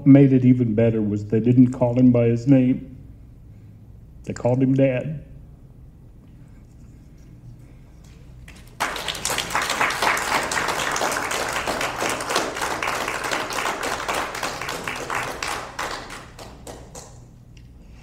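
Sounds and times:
audience applauding: 8.4 - 17.3.

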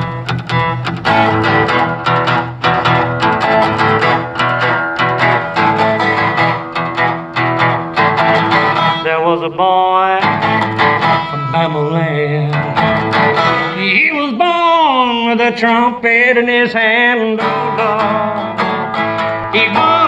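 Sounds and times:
resonator guitar blues: 0.0 - 20.0
person singing wordless note: 11.3 - 13.0.

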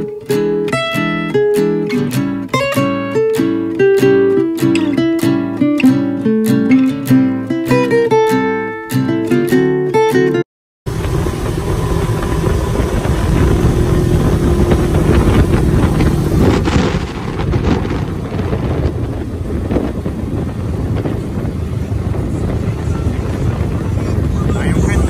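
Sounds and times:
steady hum: 10.9 - 25.0
vehicle engine and road noise: 10.9 - 25.0
wind buffeting on microphone: 10.9 - 25.0.

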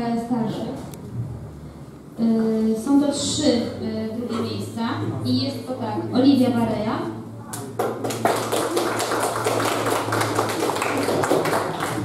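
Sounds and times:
audience applauding: 7.7 - 12.0.

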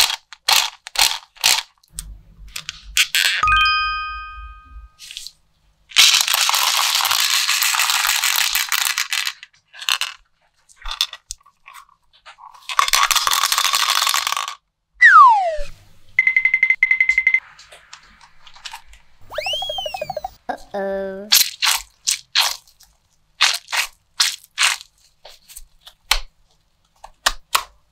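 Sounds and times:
candies rattling against plastic: 0.0 - 1.9, 5.9 - 14.6, 21.3 - 25.6
falling whistle sound effect: 15.0 - 15.7, 19.3 - 20.4
warbling electronic tone: 15.0 - 15.7, 19.2 - 20.4.

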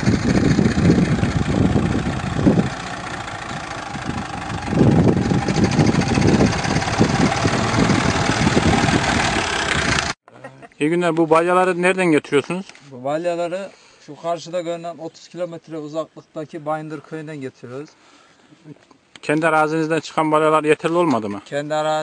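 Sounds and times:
tractor diesel engine running: 0.0 - 10.2.

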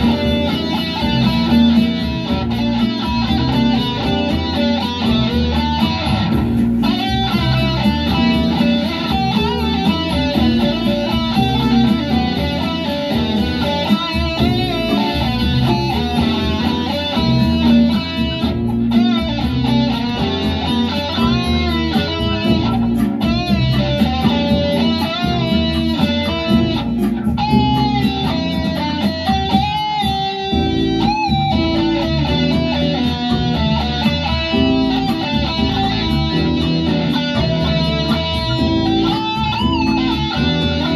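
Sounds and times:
electric guitar lead: 0.0 - 40.9
musical backing: 0.0 - 40.9.

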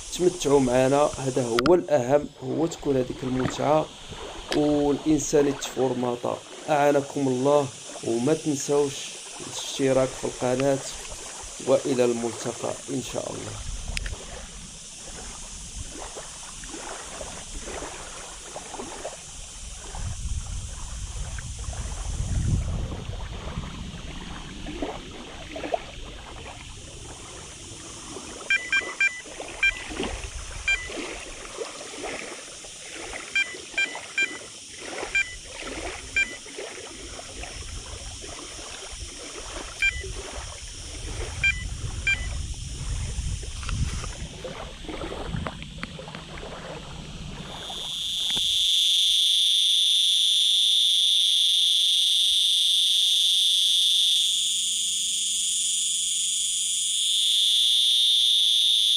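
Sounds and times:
wind on microphone: 0.0 - 5.6, 8.1 - 32.3, 34.8 - 48.6
insect chorus: 0.0 - 58.9.

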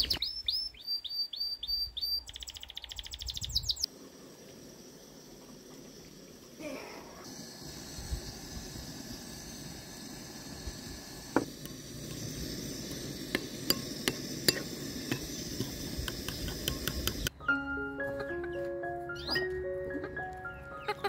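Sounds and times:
metal spoon stirring paste: 11.5 - 17.3
spoon clinking against ceramic bowl: 13.3 - 17.3.

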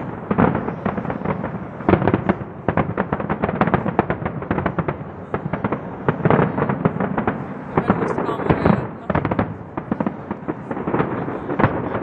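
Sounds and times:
fireworks bangs and crackling: 0.0 - 12.0.

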